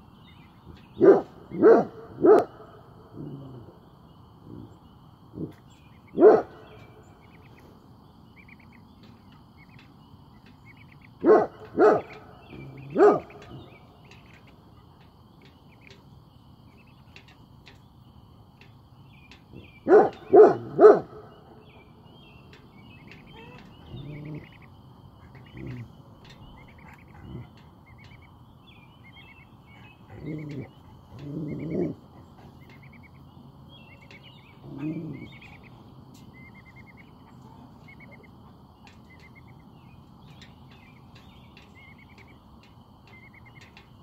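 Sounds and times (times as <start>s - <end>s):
faint bird chirps: 0.0s - 44.0s
dog barking deeply: 1.0s - 3.7s, 6.1s - 6.7s, 11.2s - 13.7s, 19.6s - 21.4s.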